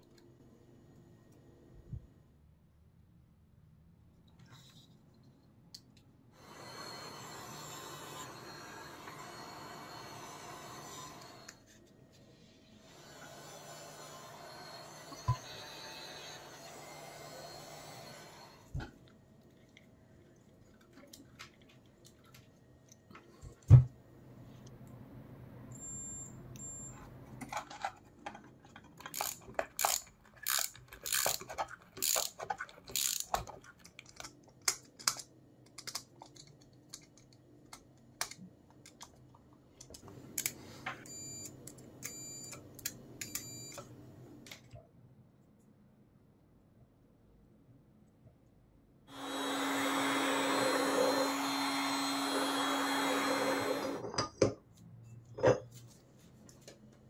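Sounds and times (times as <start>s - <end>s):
metal and plastic parts clicking: 27.4s - 39.1s
ratchet wrench clicking: 29.1s - 31.4s, 32.0s - 32.3s, 32.9s - 33.3s.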